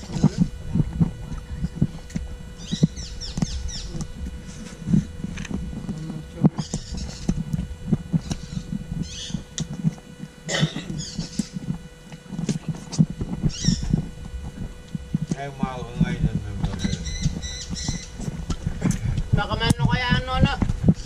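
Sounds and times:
faint steady hum: 0.0s - 21.0s
rapid high chirping calls: 8.3s - 9.4s, 11.0s - 11.6s, 13.5s - 13.9s, 16.8s - 18.2s.

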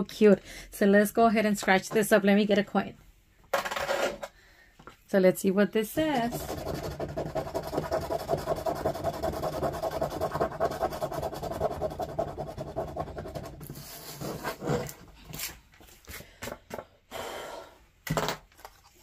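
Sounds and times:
coin rubbing on a scratch card: 6.2s - 14.9s.

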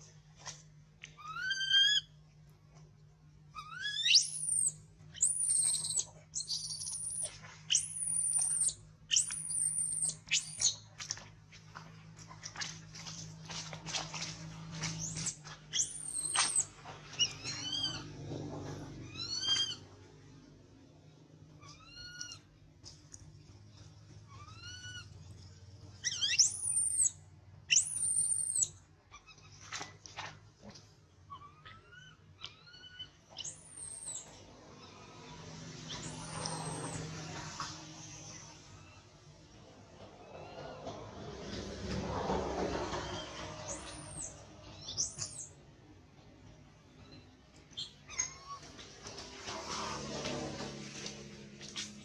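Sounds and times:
infant monkey screaming: 1.2s - 2.1s, 3.6s - 10.7s, 15.7s - 16.6s, 17.2s - 18.2s, 19.0s - 19.9s, 24.4s - 25.1s, 26.0s - 27.1s.

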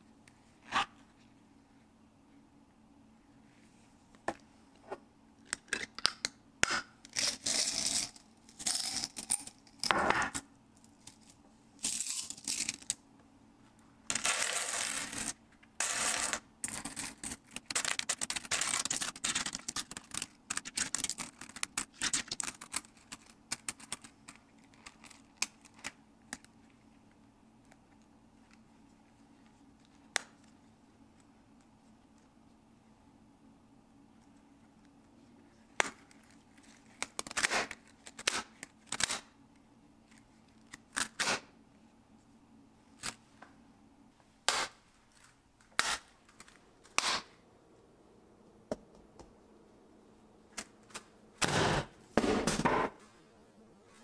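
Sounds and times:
coins clinking in leather pouch: 14.1s - 21.4s.

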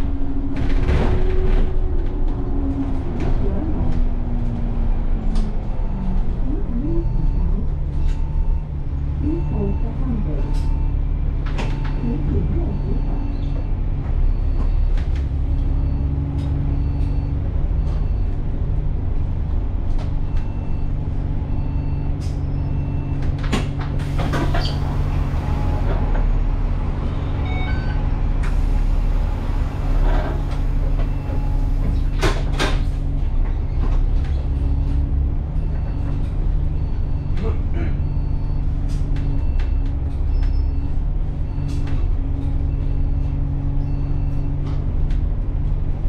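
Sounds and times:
bus engine humming: 0.0s - 46.0s
bus doors clicking and knocking: 23.1s - 26.4s, 27.7s - 35.1s.

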